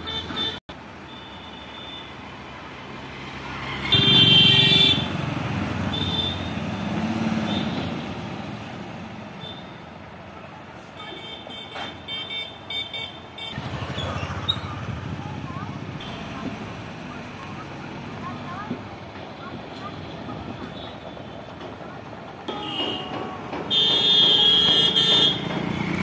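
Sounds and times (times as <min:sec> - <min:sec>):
vehicle horn honk: 0:03.9 - 0:05.2, 0:05.9 - 0:06.6, 0:22.5 - 0:25.5.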